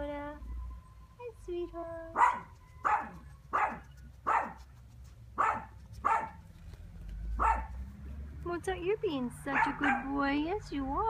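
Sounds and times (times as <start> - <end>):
dog barking: 2.2 - 4.6, 5.4 - 6.4, 7.4 - 7.8, 9.5 - 10.1.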